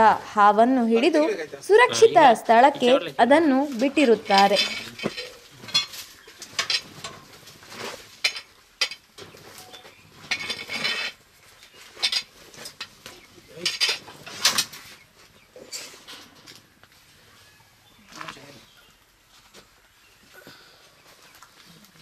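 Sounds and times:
metallic clinks and rattles: 4.1s - 7.4s, 8.2s - 11.2s, 12.0s - 13.0s, 13.6s - 14.7s.

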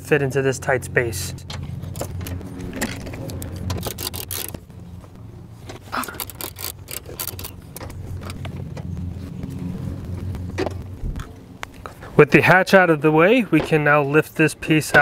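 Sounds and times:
hand ratchet clicking: 3.4s - 4.6s, 6.0s - 7.9s.

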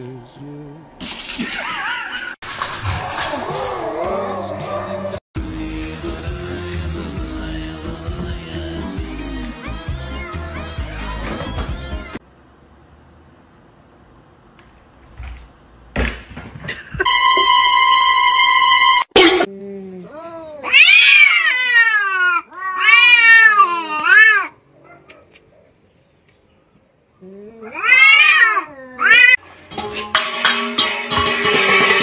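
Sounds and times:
cats yowling: 20.2s - 25.2s, 27.6s - 29.4s.

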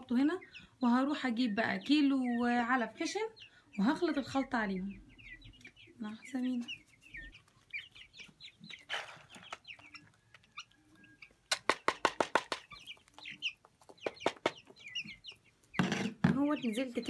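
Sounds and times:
chicks peeping: 0.0s - 17.0s.

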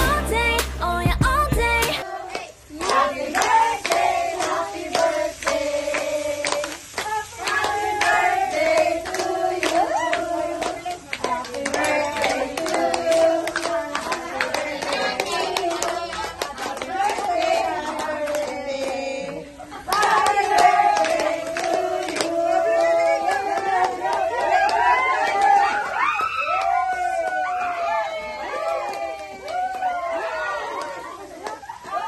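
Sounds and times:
group singing a celebration song: 0.0s - 25.9s.

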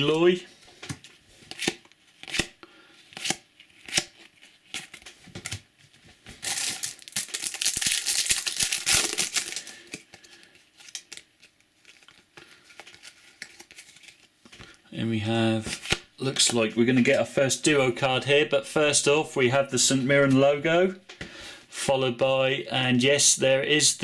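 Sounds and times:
foil pack tearing open: 6.4s - 10.0s.

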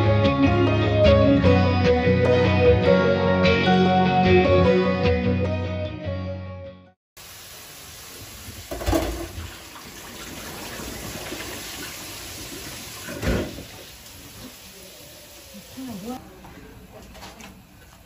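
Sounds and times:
tap running into steel sink: 8.7s - 9.5s.

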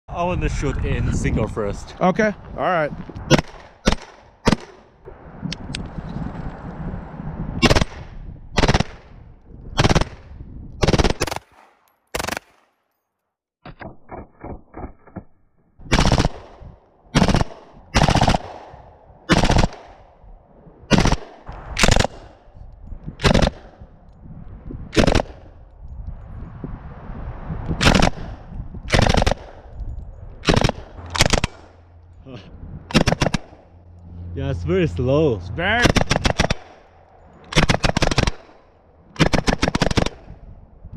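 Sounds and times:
single gunshots: 3.3s - 4.9s, 15.9s - 20.1s, 20.9s - 22.4s, 23.2s - 23.8s, 24.9s - 25.6s, 27.8s - 29.7s, 30.4s - 31.8s, 32.9s - 33.6s, 35.7s - 36.9s.

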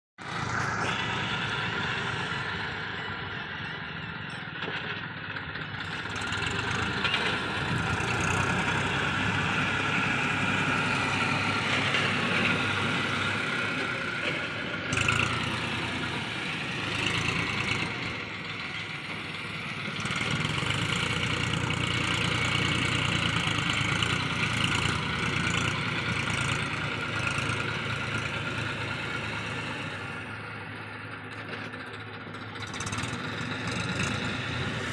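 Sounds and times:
tractor diesel engine running: 0.2s - 34.9s
blade dragging through gravel: 34.6s - 34.9s.

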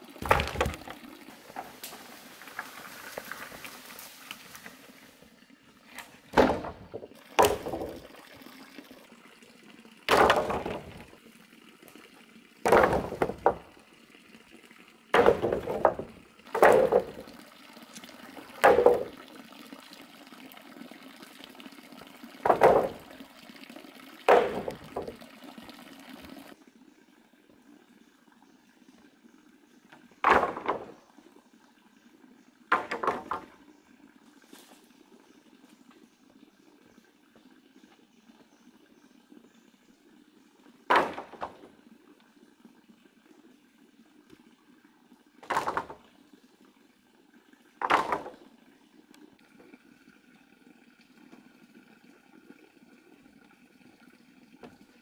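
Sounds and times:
bamboo poles clattering: 0.2s - 4.8s, 5.9s - 8.2s, 10.1s - 11.2s, 12.6s - 13.7s, 15.1s - 19.3s, 22.4s - 23.2s, 24.3s - 25.2s, 30.2s - 31.1s, 32.7s - 33.6s, 40.9s - 41.7s, 45.4s - 46.0s, 47.8s - 48.4s.

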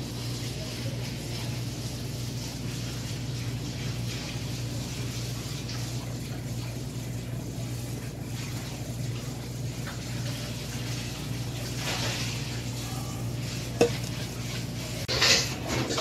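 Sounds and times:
liquid trickling into bowl: 2.6s - 14.9s.

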